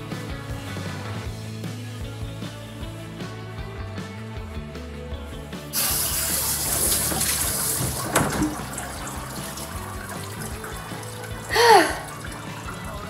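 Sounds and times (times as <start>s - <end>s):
background music: 0.0s - 13.0s
water spraying from shower sprayer: 5.8s - 12.9s.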